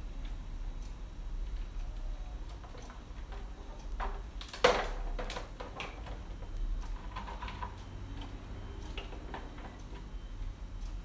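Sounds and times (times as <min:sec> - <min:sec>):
eggs and plastic racks clicking: 0:02.5 - 0:10.1.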